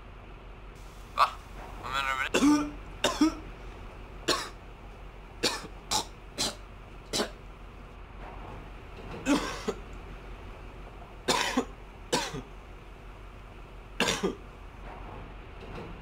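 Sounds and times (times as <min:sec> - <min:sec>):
man coughing: 0:02.3 - 0:03.4, 0:09.3 - 0:09.8.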